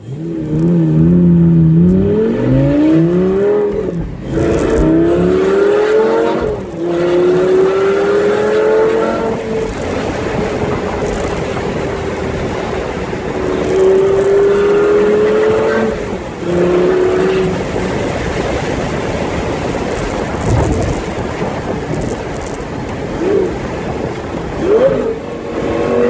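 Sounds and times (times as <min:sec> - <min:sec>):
car engine from inside cabin: 0:00.0 - 0:18.0
road and tyre noise: 0:00.0 - 0:26.0.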